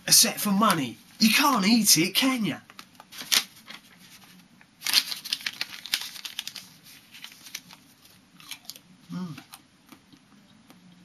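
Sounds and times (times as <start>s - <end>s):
paper banknotes crinkling and tearing: 3.1s - 8.2s.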